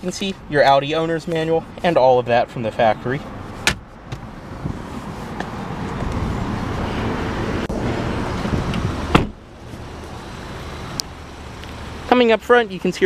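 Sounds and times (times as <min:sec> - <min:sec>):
car door thud: 0:03.6 - 0:04.8, 0:08.8 - 0:09.4
car engine idling: 0:07.4 - 0:13.0.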